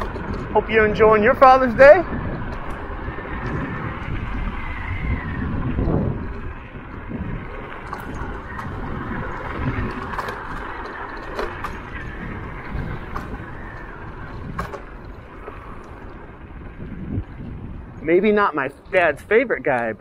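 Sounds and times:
scooter tyres rumbling on asphalt: 0.0 - 20.0
sharp clicks from bumps: 0.0 - 20.0
wind on microphone: 0.0 - 20.0.

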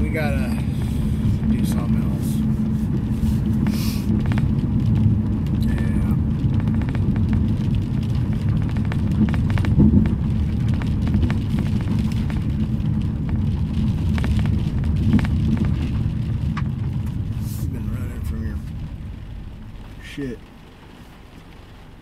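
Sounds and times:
car cabin rumble: 0.0 - 22.0
raindrops ticking on car roof: 0.0 - 22.0.

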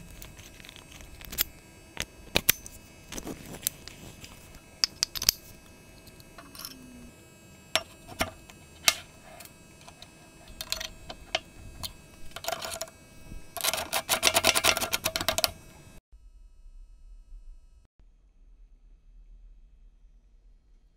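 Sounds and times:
metal parts clicking and knocking: 9.8 - 12.9, 13.5 - 15.6
rapid clicks: 9.8 - 15.7.

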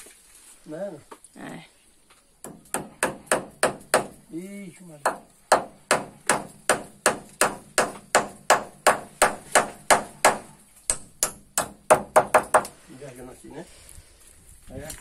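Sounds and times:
hammer driving nail into wood: 2.4 - 4.2, 5.1 - 12.8.

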